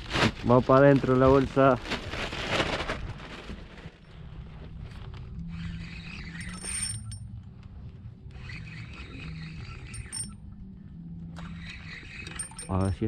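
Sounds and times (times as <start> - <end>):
gear scraping and rubbing: 5.4 - 7.2, 8.4 - 10.4, 11.4 - 13.0.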